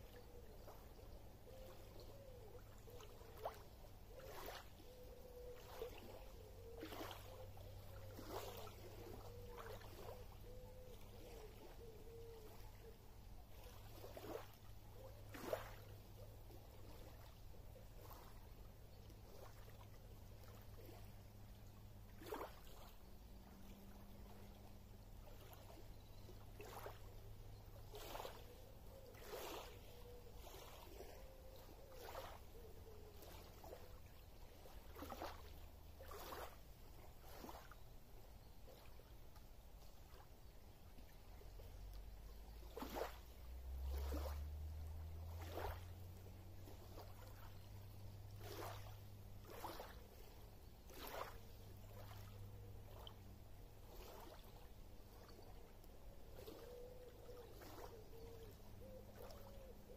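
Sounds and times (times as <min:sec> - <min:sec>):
waves lapping on pebbly shore: 0:00.0 - 0:59.9.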